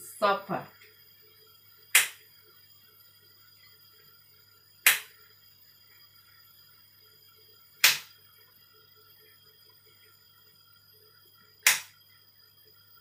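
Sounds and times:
faint steady hum: 0:00.0 - 0:13.0
sharp loud clicks: 0:01.9 - 0:02.2, 0:04.8 - 0:05.1, 0:07.8 - 0:08.1, 0:11.6 - 0:12.0.

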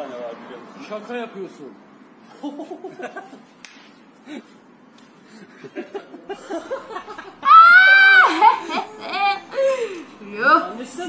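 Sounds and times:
high-pitched held vocal cry: 0:07.4 - 0:09.9.

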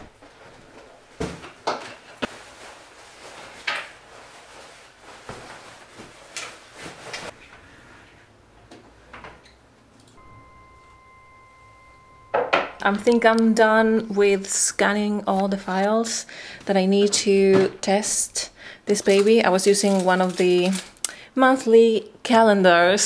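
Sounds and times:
faint steady tone: 0:10.2 - 0:14.1.

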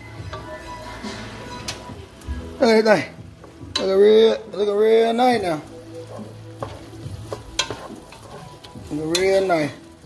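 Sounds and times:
onions sizzling in a pot: 0:00.0 - 0:10.0
man's voice: 0:02.5 - 0:03.2, 0:03.8 - 0:05.8, 0:08.8 - 0:09.8
wooden spatula stirring: 0:03.4 - 0:10.0.

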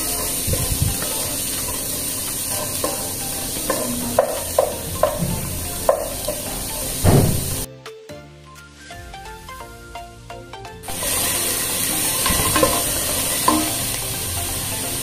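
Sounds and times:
wooden spatula scraping pot: 0:00.0 - 0:06.5
vegetables sizzling in oil: 0:00.0 - 0:07.7, 0:10.8 - 0:15.0.

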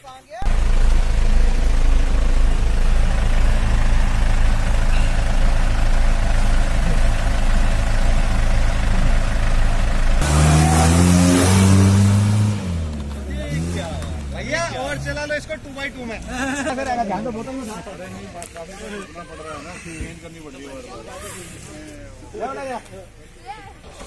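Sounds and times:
engine running and revving: 0:00.4 - 0:15.5.

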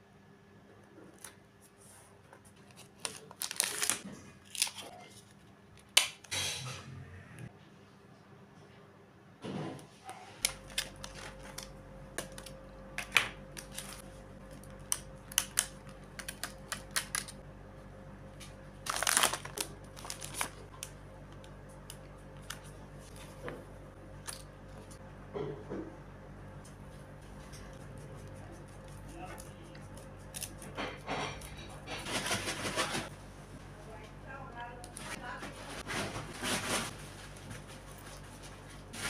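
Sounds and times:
faint steady hum: 0:00.0 - 0:39.0
plastic rustle: 0:02.5 - 0:05.4, 0:18.8 - 0:20.9, 0:35.0 - 0:39.0.

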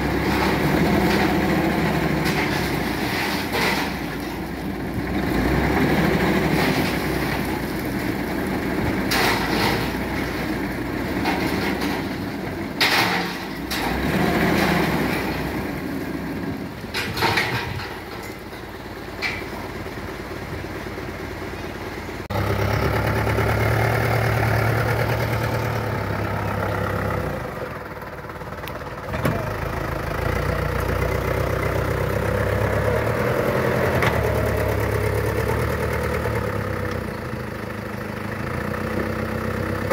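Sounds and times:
truck engine running under load: 0:00.0 - 0:39.9.

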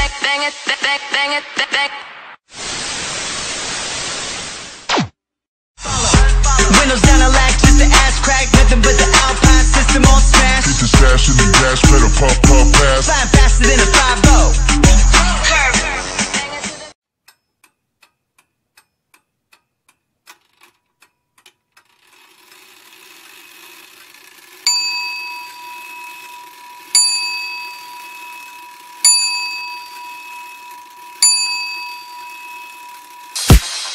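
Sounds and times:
hiss: 0:02.5 - 0:04.9
faint ticking: 0:17.2 - 0:24.6
bell-like ding: 0:31.2 - 0:33.4.

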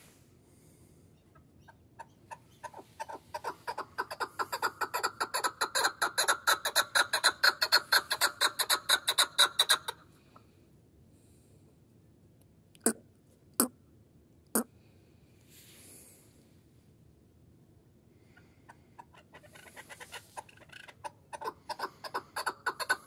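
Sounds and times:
partridge clucking calls: 0:01.2 - 0:10.0, 0:18.7 - 0:23.0.

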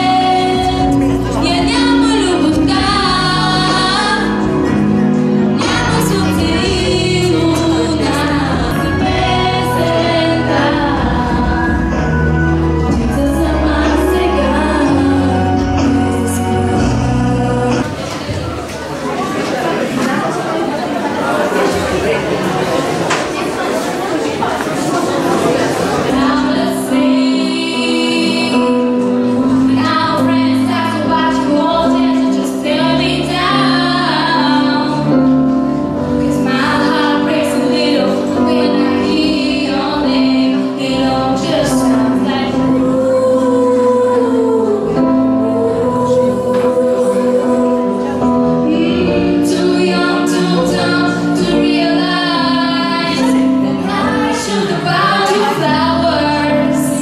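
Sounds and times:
woman and girl singing: 0:00.0 - 0:04.6, 0:05.6 - 0:12.1, 0:26.1 - 0:29.0, 0:29.6 - 0:35.2, 0:36.2 - 0:57.0
instrumental accompaniment: 0:00.0 - 0:20.4, 0:21.7 - 0:57.0.

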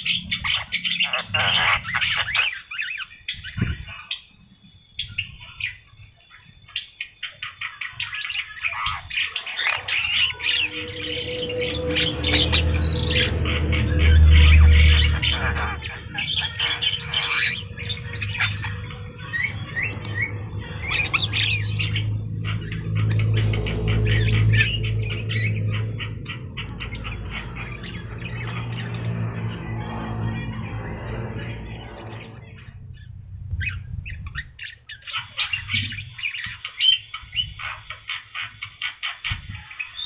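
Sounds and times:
myna bird singing: 0:00.0 - 0:40.0
myna harsh squawks and whistles: 0:08.6 - 0:22.1.

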